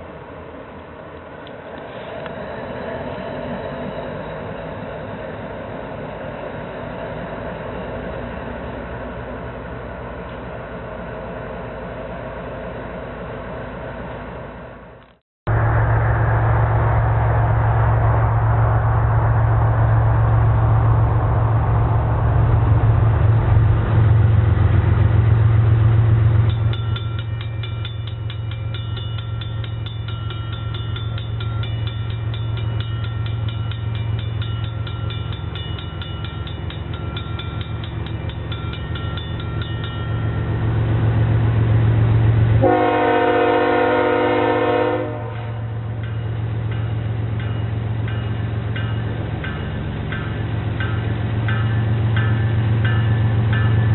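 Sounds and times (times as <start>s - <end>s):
diesel train engine drone: 0.0s - 53.9s
train rolling noise: 0.0s - 53.9s
grade-crossing bell ringing: 26.4s - 40.9s, 45.5s - 53.9s
locomotive air horn: 42.6s - 45.8s.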